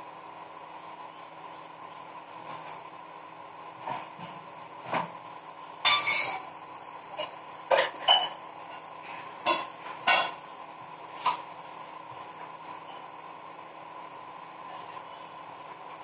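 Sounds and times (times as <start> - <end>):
faint steady hum: 0.0 - 16.0
kitchenware clinking: 5.8 - 6.5, 7.2 - 8.4, 9.4 - 10.4.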